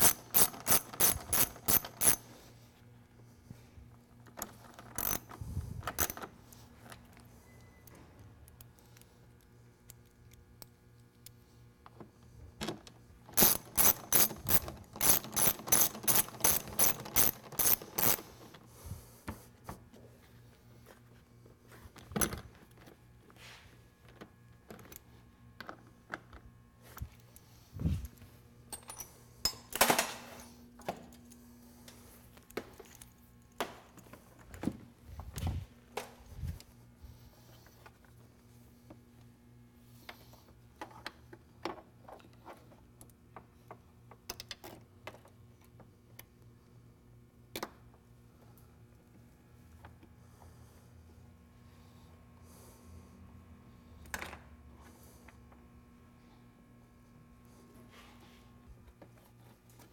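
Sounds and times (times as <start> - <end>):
socket ratchet clicking: 0.0 - 2.2, 4.4 - 5.3, 5.9 - 6.3, 13.3 - 18.4
tools clicking and knocking: 0.0 - 2.2, 4.2 - 6.3, 11.9 - 18.6, 28.7 - 31.2.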